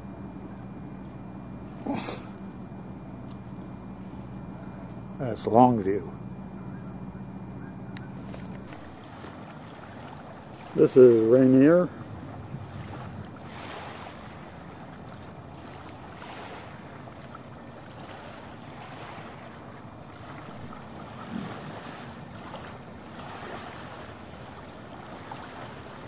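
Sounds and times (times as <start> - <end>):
small waves washing onto shore: 8.3 - 26.0
wind buffeting microphone: 8.9 - 15.6.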